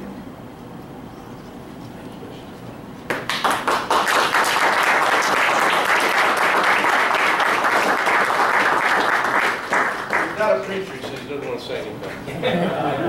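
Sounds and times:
crowd applauding: 0:03.1 - 0:11.6.

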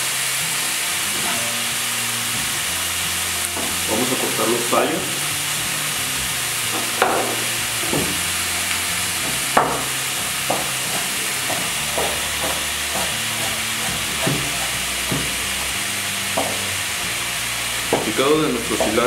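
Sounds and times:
onion sizzling in a pan: 0:00.0 - 0:19.0
knife chopping on cutting board: 0:06.8 - 0:08.2, 0:09.2 - 0:09.9, 0:10.5 - 0:15.4, 0:16.4 - 0:16.7.

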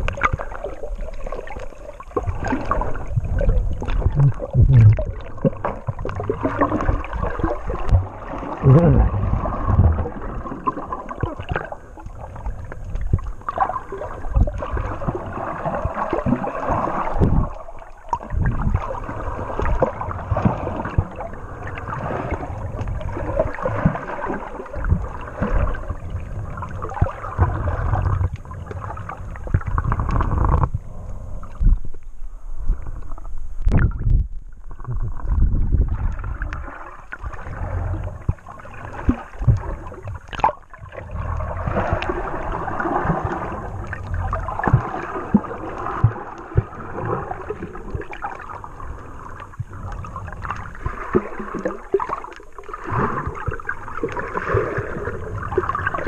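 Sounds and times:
underwater water gurgling: 0:00.0 - 0:56.0
low knocks and thumps: 0:03.8 - 0:05.2.

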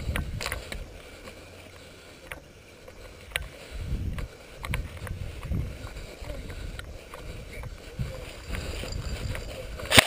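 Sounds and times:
wind rumble on microphone: 0:00.0 - 0:01.0, 0:03.3 - 0:10.0.

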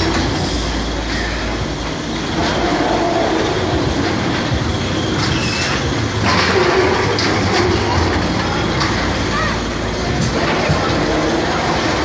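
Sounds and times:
coaster wheels rumbling on track: 0:00.0 - 0:12.0
brief squeal: 0:05.0 - 0:05.9.

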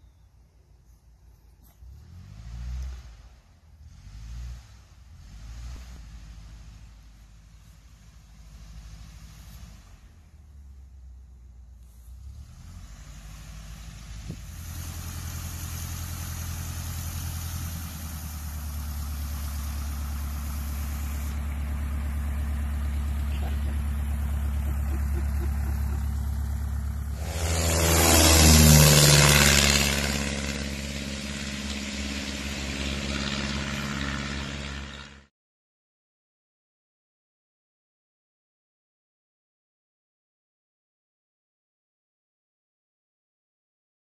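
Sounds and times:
light plane engine drone: 0:00.0 - 0:35.3
propeller rush: 0:12.8 - 0:35.3.

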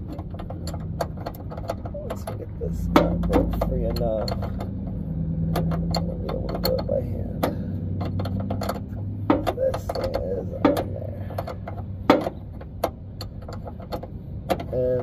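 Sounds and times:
metal wrench clicking and clinking: 0:00.0 - 0:14.8
steady low hum: 0:00.0 - 0:15.0.

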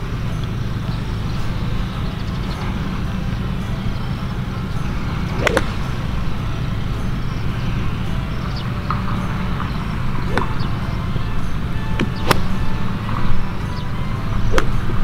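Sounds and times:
golf club striking a ball: 0:00.0 - 0:15.0
low outdoor rumble: 0:00.0 - 0:15.0.

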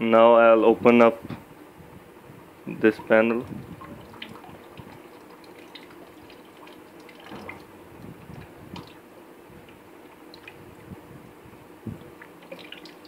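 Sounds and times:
water trickling into plastic bucket: 0:02.9 - 0:09.0, 0:09.6 - 0:10.9, 0:11.9 - 0:13.0
water drips: 0:02.9 - 0:11.0, 0:11.9 - 0:13.0.

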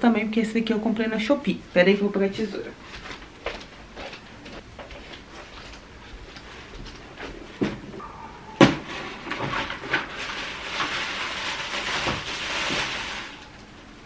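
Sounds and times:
plastic packaging crinkling: 0:08.7 - 0:13.8.

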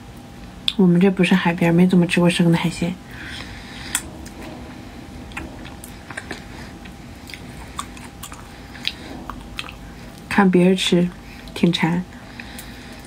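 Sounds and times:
person chewing crunchy shrimp: 0:05.3 - 0:10.3.

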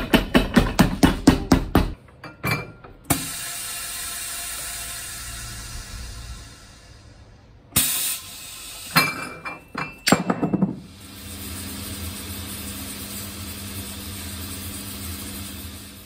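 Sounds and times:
clinks and knocks: 0:00.0 - 0:03.0, 0:09.0 - 0:10.8
pneumatic press hiss: 0:03.1 - 0:09.6.

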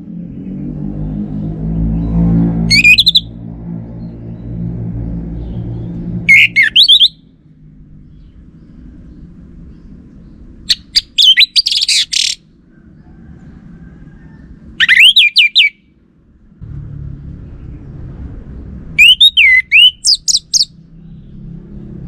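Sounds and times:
low steady rumble: 0:00.0 - 0:15.1, 0:15.7 - 0:22.0
thrush singing: 0:05.5 - 0:07.1, 0:18.9 - 0:20.7.

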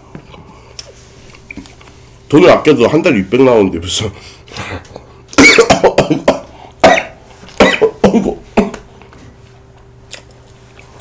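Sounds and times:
man coughing: 0:04.6 - 0:08.9.

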